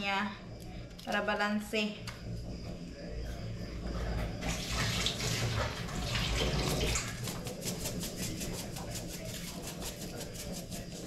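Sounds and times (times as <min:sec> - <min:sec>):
spice shaker rattling: 0:07.2 - 0:11.0.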